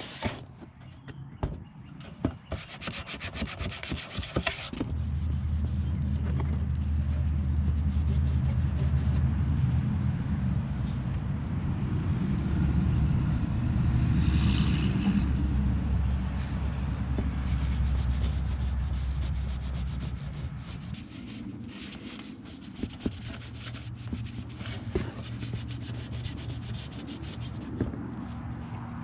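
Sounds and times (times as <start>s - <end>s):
low hum: 4.8s - 24.5s
sanding sheet metal: 17.4s - 27.8s.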